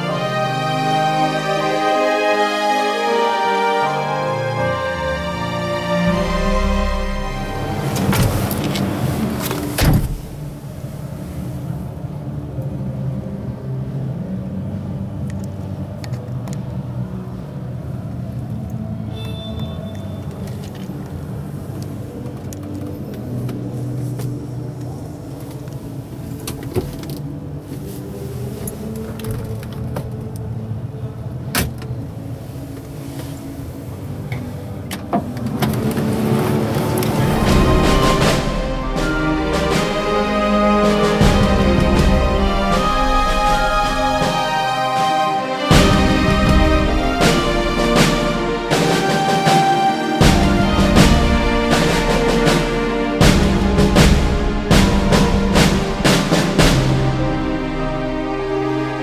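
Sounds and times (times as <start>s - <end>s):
steady low rumble: 5.9s - 19.0s, 32.0s - 44.7s, 45.7s - 48.8s, 50.2s - 59.0s
truck door shutting: 7.8s - 10.6s.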